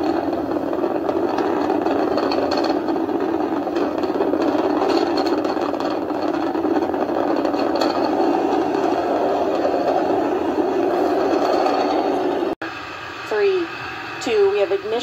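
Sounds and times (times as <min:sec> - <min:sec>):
rocket engines rumbling: 0:00.0 - 0:15.0.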